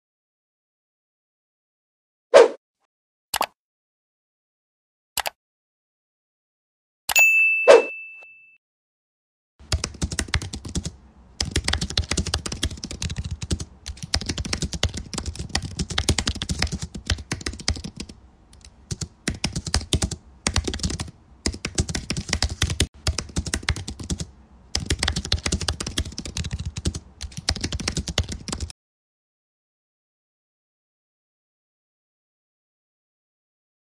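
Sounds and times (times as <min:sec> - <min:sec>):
computer keyboard typing: 0:09.6 - 0:28.7.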